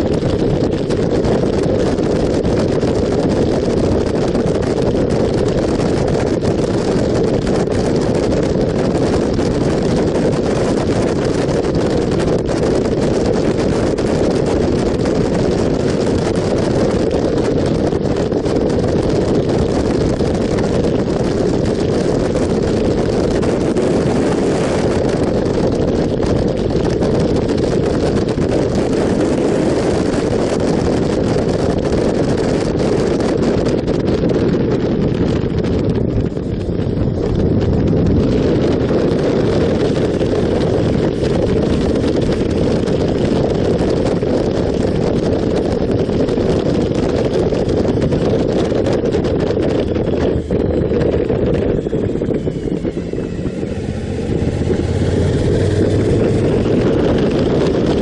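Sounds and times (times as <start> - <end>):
wind rushing over microphone: 0.0 - 58.0
motorcycle engine: 35.1 - 45.0, 46.9 - 58.0.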